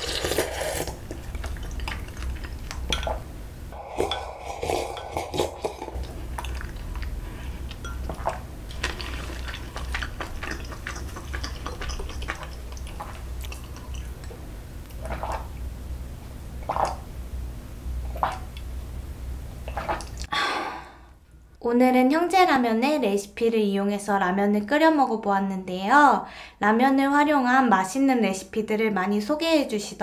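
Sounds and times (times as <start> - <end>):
person gulping water: 0.0 - 15.5, 16.6 - 17.0, 18.0 - 18.6, 19.6 - 20.4
low steady hum: 0.0 - 30.0.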